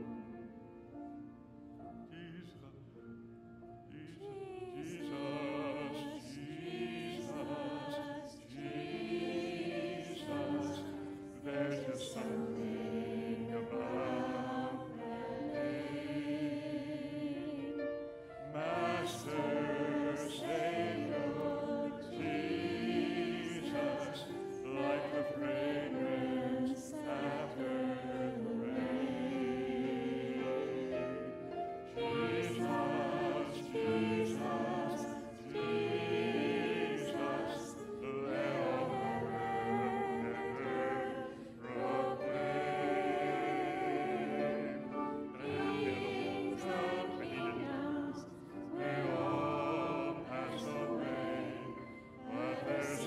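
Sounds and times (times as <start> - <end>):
group singing a slow carol: 0.0 - 0.6, 3.9 - 53.0.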